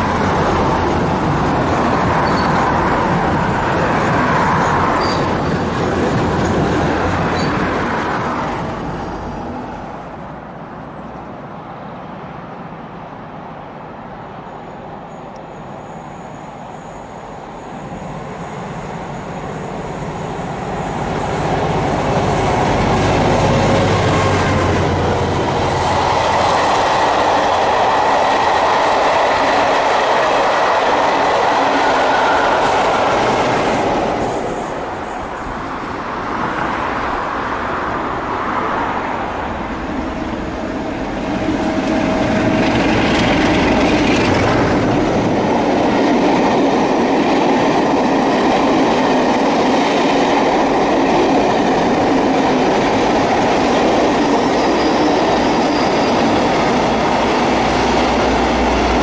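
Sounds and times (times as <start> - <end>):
locomotive engine approaching: 17.2 - 59.0
train wheels clattering over rail joints: 41.8 - 58.5.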